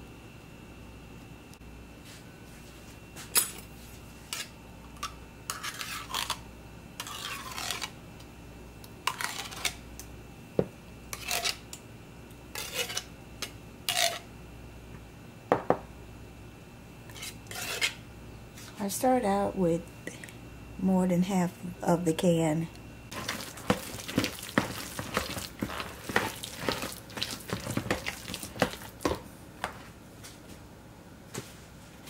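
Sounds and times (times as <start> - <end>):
spoon scraping mixing bowl: 5.5 - 6.4, 7.0 - 8.0, 12.6 - 13.1, 17.1 - 18.0, 23.1 - 29.8.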